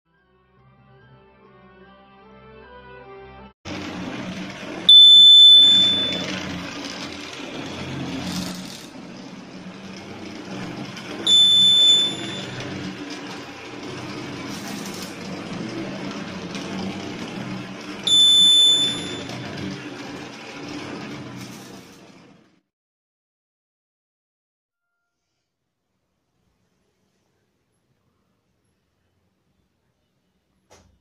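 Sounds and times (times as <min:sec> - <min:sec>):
model train rattling on track: 0:03.7 - 0:22.2
piezo buzzer beeping: 0:04.9 - 0:06.3, 0:11.3 - 0:12.6, 0:18.1 - 0:19.3.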